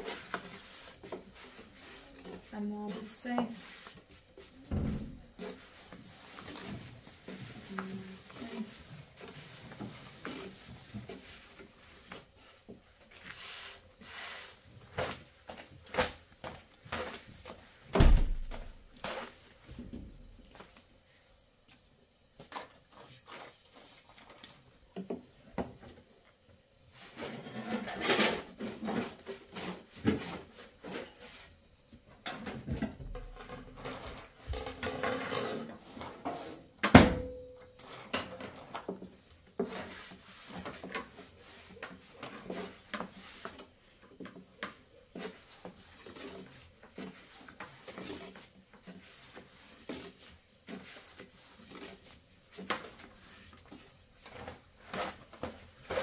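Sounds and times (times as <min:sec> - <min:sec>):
rolling pin rolling dough: 0:00.0 - 0:19.7, 0:37.8 - 0:56.0.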